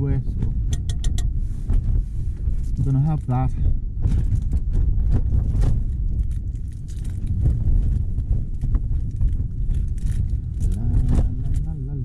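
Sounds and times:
strong wind rumble: 0.0 - 12.0
tent flaps and knocks: 4.0 - 11.7.

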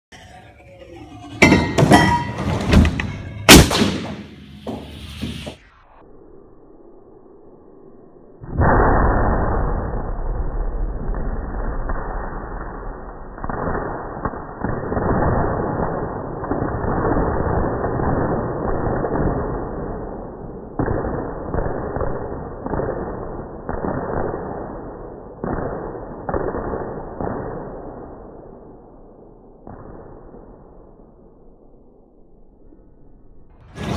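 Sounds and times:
fireworks shells exploding: 1.1 - 5.8.

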